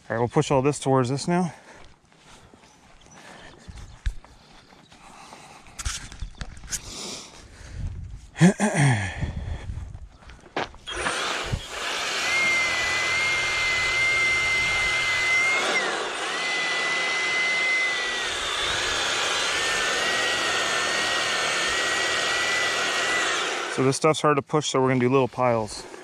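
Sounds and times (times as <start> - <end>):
electric motor whining: 10.8 - 23.9.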